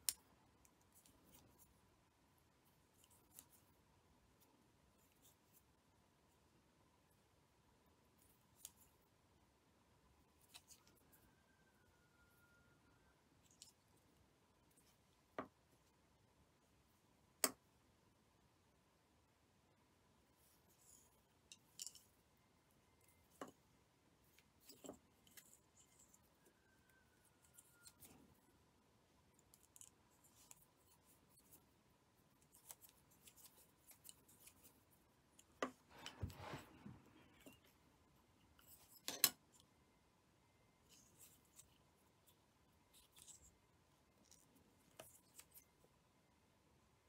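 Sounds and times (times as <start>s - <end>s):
thread rustling between fingers: 0.0s - 6.5s, 20.2s - 39.8s, 40.5s - 46.1s.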